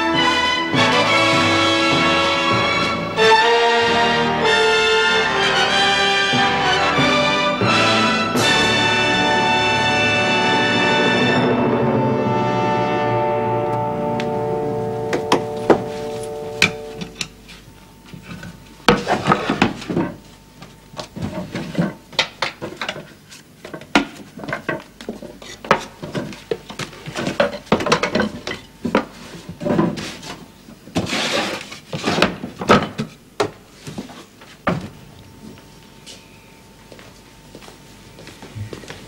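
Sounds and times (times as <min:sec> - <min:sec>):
wooden floorboards knocking and scraping: 0:21.0 - 0:35.0.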